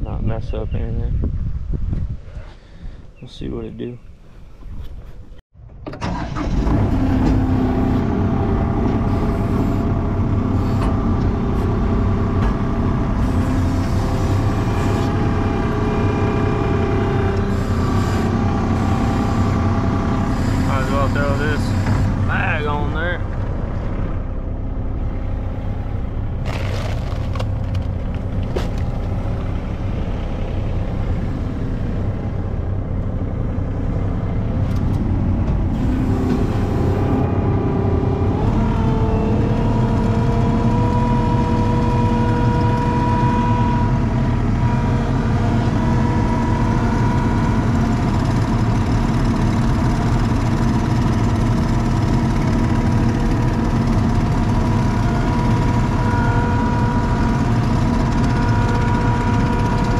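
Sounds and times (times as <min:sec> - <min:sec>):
diesel engine running: 0:02.5 - 0:59.9.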